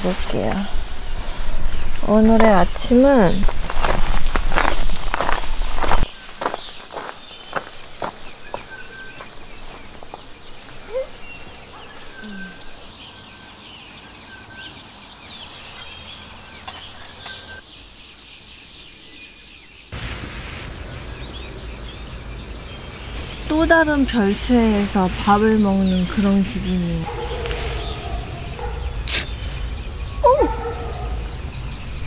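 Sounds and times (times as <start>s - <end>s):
birds chirping and whistling: 0.3s - 20.0s, 20.7s - 32.0s
background hiss: 15.5s - 30.6s.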